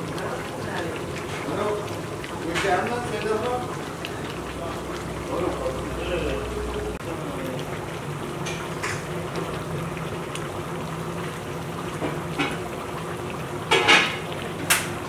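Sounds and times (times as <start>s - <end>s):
stew bubbling in a pot: 0.0s - 15.0s.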